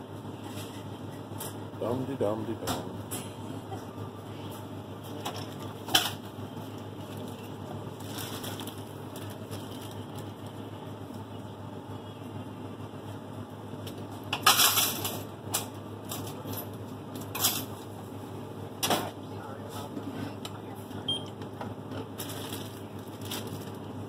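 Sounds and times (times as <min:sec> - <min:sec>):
steady low hum: 0:00.0 - 0:24.0
plastic bags rustling: 0:07.0 - 0:10.6, 0:22.2 - 0:23.9
paper money crinkling: 0:08.0 - 0:10.4, 0:22.2 - 0:23.8.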